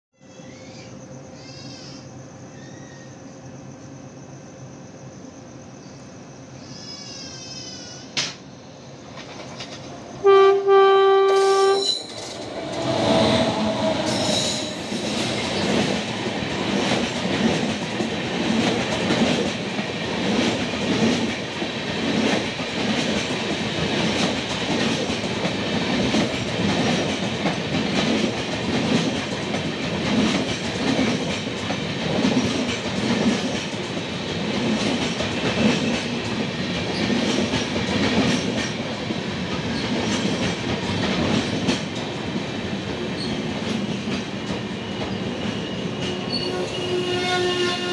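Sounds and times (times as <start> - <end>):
train coaches rumbling past: 0.3 - 47.9
train horn chord: 10.2 - 11.9, 46.1 - 47.9.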